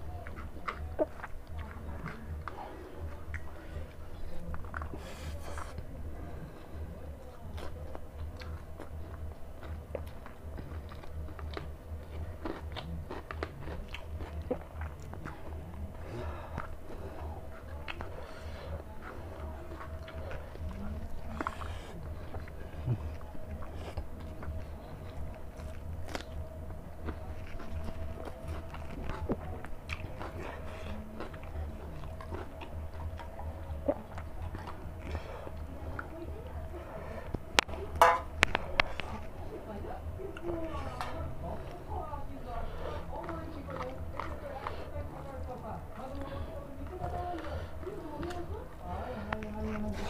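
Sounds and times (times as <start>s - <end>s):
steady low hum: 0.0s - 50.0s
wet chewing and mouth smacks: 0.0s - 50.0s
rice squishing on plate: 37.0s - 41.8s.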